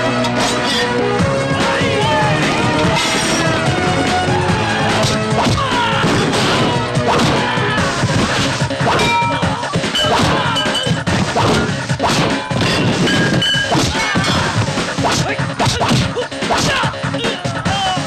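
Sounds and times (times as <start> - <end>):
punch and kick whacks: 5.0 - 8.6, 9.8 - 16.8.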